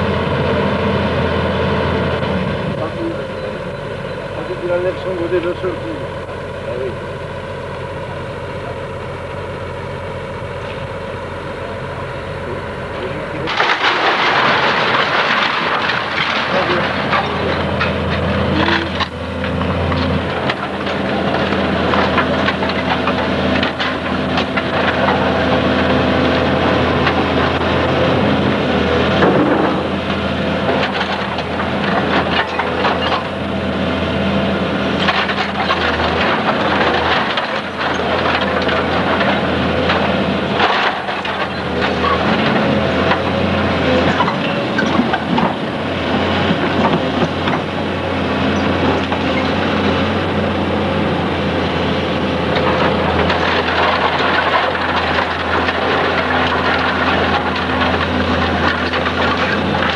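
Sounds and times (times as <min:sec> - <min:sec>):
excavator diesel engine: 0:00.0 - 0:59.9
rubble falling: 0:13.1 - 0:59.9
timber breaking: 0:13.4 - 0:28.0.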